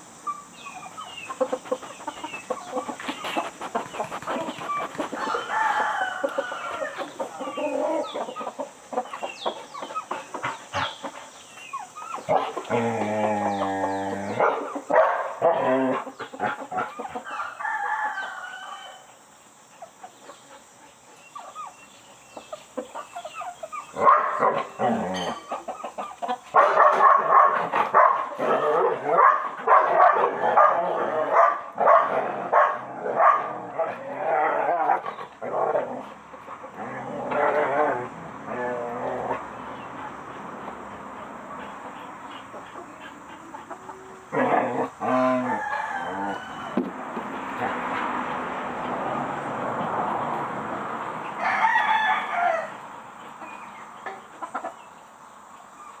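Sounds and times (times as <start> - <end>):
rooster crowing: 4.3 - 8.2, 17.1 - 19.1, 44.1 - 46.9, 51.3 - 52.9
dog barking and yelping: 11.7 - 12.9, 14.2 - 17.2, 23.3 - 36.0.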